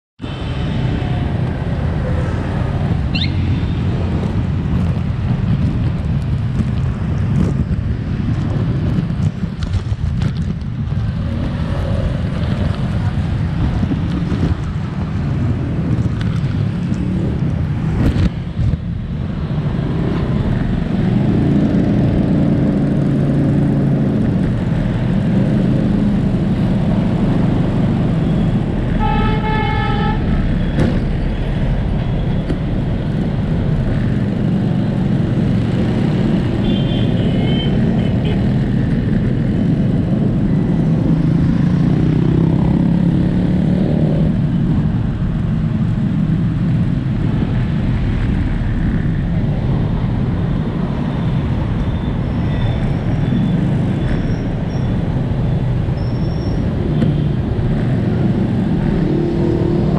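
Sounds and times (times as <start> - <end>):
street traffic: 0.2 - 59.9.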